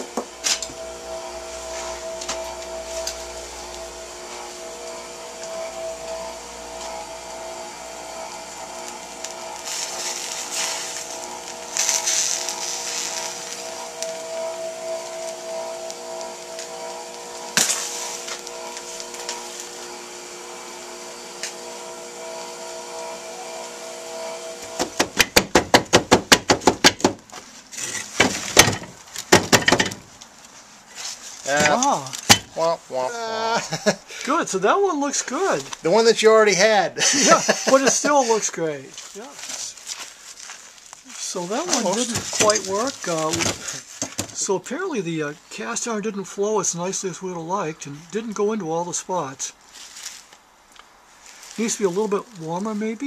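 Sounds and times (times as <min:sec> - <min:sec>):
loud rustling strokes: 0:00.0 - 0:26.8, 0:27.4 - 0:33.0
furnace blower humming and hissing: 0:00.0 - 0:30.2, 0:31.1 - 0:40.3, 0:41.0 - 0:45.0
sharp crack: 0:15.1 - 0:19.8.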